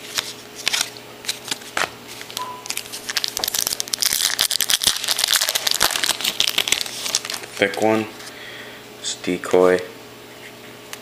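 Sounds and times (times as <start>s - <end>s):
foil wrapper crinkling: 0.0s - 8.3s.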